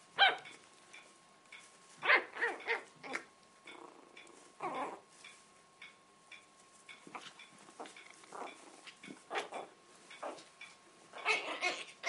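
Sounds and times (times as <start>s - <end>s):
puppy yipping: 0.2s - 0.5s, 2.0s - 3.3s, 11.2s - 12.0s.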